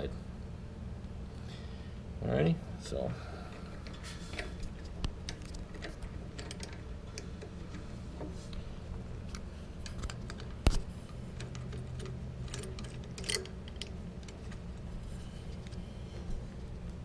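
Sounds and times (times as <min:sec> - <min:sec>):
steady low hum: 0:00.0 - 0:17.0
allen wrench clicking and scraping bolts: 0:03.5 - 0:08.3, 0:09.3 - 0:14.6.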